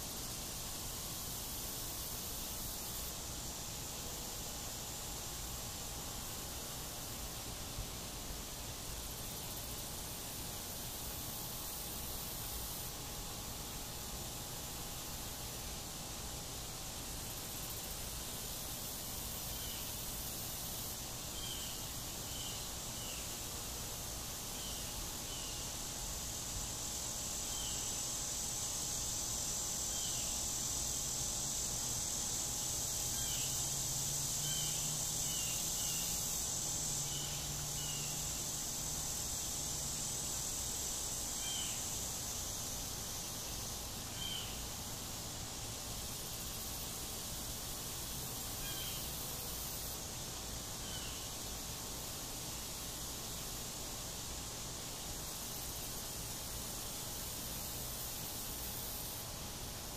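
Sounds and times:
insect chirps: 0:00.0 - 0:59.9
insect chorus drone: 0:00.0 - 0:59.9.

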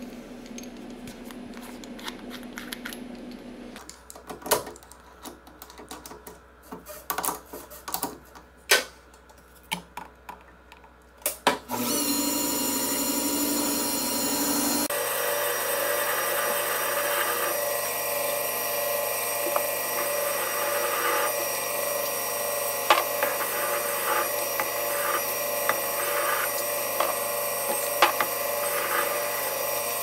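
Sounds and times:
lathe running with whine: 0:11.7 - 0:30.0.

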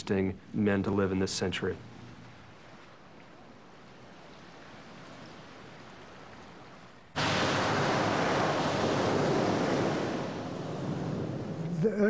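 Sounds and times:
faint hiss: 0:00.0 - 0:12.0
rush of surf: 0:03.9 - 0:12.0.

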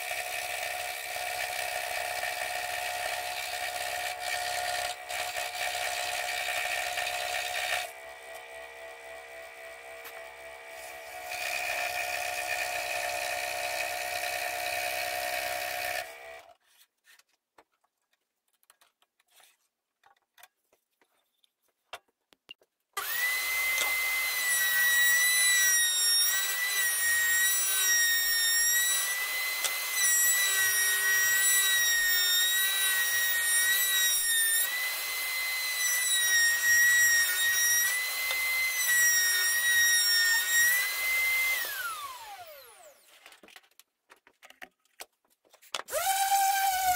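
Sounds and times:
scroll saw cutting wood: 0:00.0 - 0:16.9, 0:23.0 - 0:43.6, 0:45.8 - 0:46.9
router high whine: 0:04.0 - 0:16.5, 0:23.0 - 0:43.1, 0:45.9 - 0:46.9.

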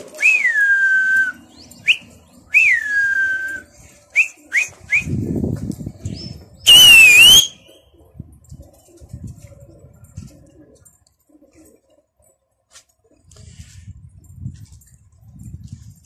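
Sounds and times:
person whistling: 0:06.7 - 0:07.6.

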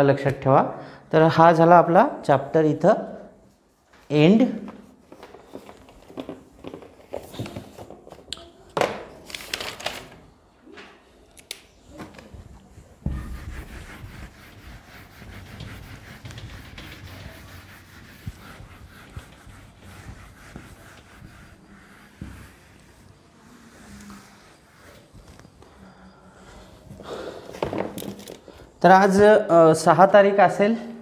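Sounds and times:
duster scrubbing whiteboard: 0:12.3 - 0:25.8
knocks and rustles: 0:27.5 - 0:28.4.

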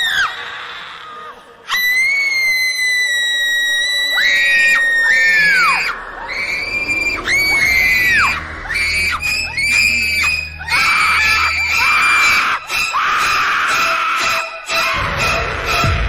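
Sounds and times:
shrill screams: 0:00.0 - 0:16.0
low rumble: 0:05.0 - 0:10.8.

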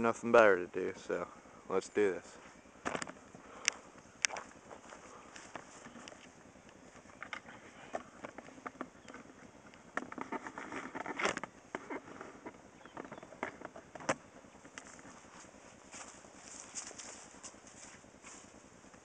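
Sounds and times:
rustling: 0:14.5 - 0:18.8.

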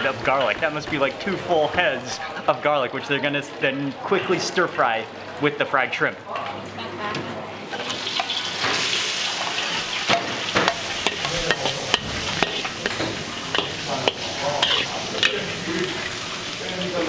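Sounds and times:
garlic sizzling in hot oil: 0:07.7 - 0:17.0
spatula stirring and scraping: 0:07.8 - 0:16.6
spatula clacking against pan: 0:10.0 - 0:15.4.

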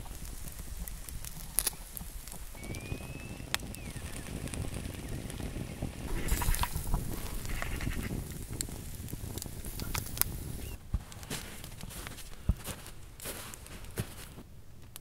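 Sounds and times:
low rumble: 0:00.0 - 0:10.8
embers crackling and popping: 0:00.0 - 0:15.0
short thin whistle: 0:02.6 - 0:04.0.

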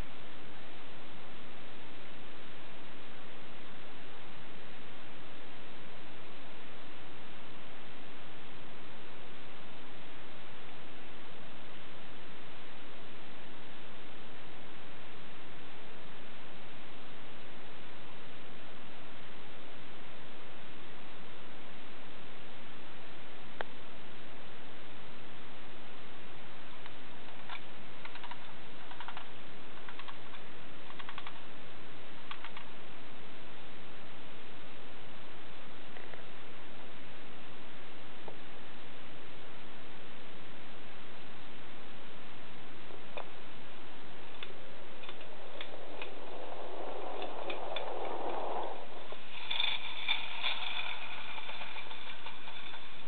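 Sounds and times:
steady hiss: 0:00.0 - 0:53.0
gears whirring: 0:44.4 - 0:53.0.

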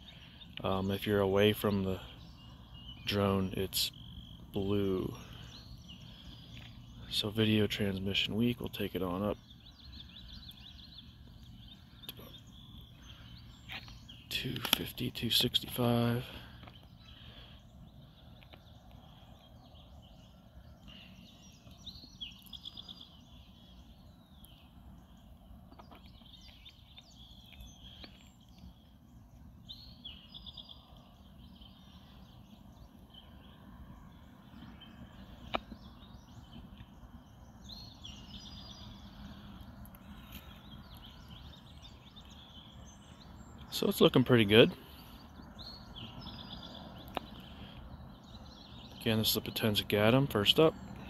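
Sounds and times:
bird trill: 0:00.0 - 0:51.0
birds singing: 0:00.0 - 0:51.0
low outdoor rumble: 0:00.0 - 0:51.0.

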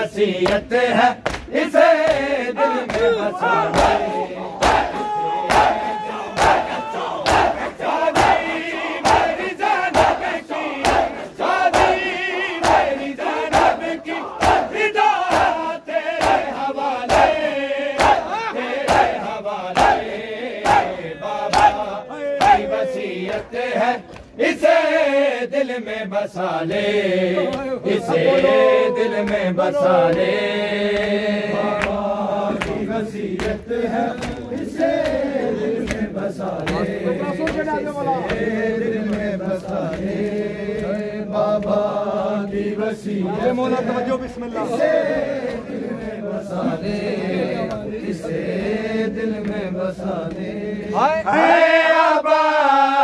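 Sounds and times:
voices chanting and wailing: 0:00.0 - 0:53.0
crowd beating chests: 0:01.3 - 0:24.4.

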